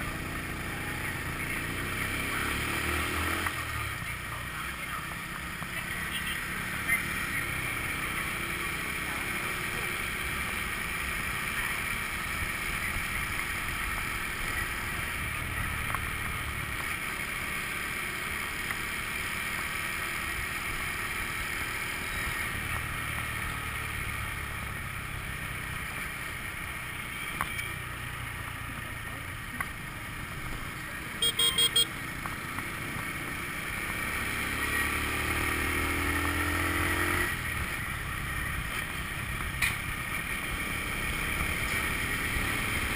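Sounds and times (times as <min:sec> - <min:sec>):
wind and road noise: 0:00.0 - 0:42.9
horn beeping: 0:31.2 - 0:32.0.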